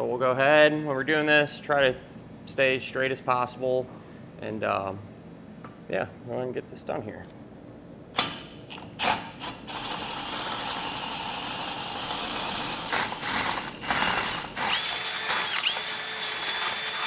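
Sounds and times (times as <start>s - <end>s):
cordless drill boring through steel: 9.7s - 17.0s.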